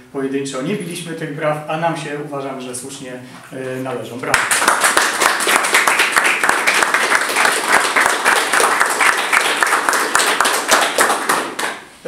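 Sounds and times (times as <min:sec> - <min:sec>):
people clapping: 0:04.2 - 0:11.9.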